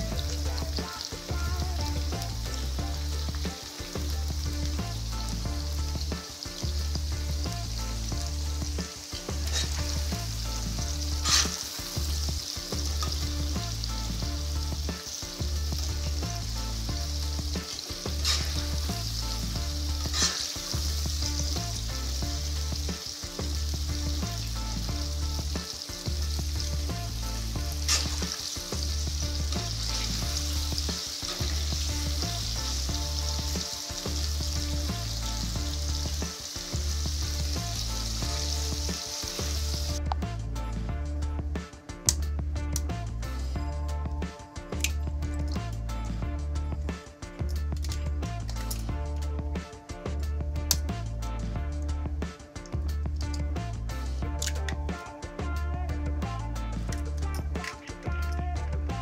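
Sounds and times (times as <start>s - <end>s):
vegetables sizzling in a wok: 0.0s - 41.0s.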